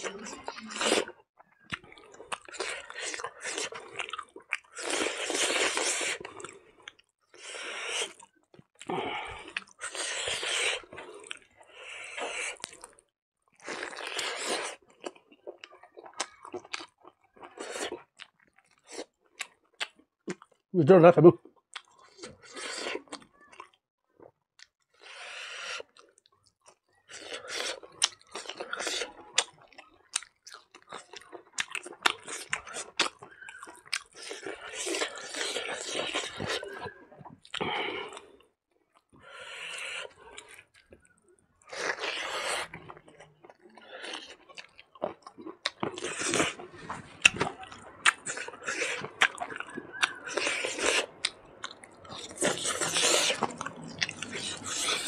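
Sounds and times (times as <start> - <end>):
close chewing with crunches: 0.0 - 20.7, 21.4 - 55.0
mouth clicks: 47.2 - 55.0.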